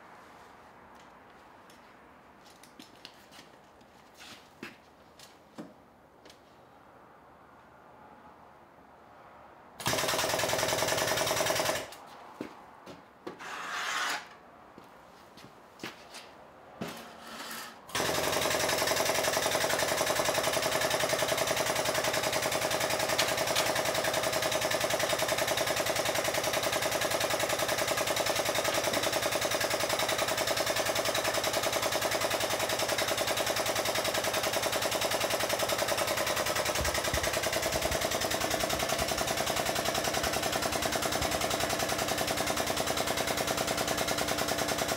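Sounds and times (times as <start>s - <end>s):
pneumatic air tool rattling: 13.4s - 14.3s, 16.9s - 44.9s.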